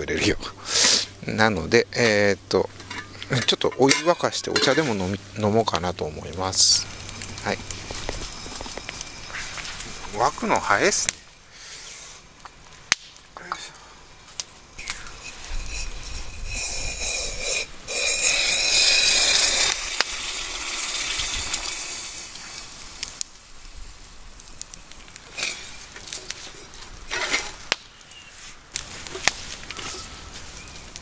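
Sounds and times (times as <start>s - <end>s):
boiling water pouring: 0.0s - 11.3s, 14.6s - 27.7s
campfire crackling and popping: 0.0s - 31.0s.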